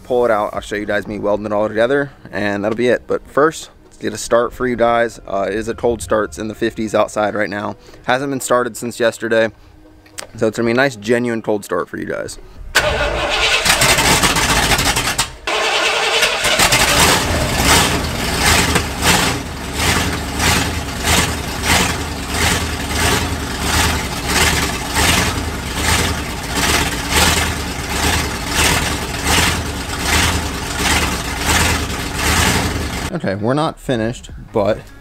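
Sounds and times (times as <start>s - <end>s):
pickup engine cold-starting: 12.8s - 33.1s.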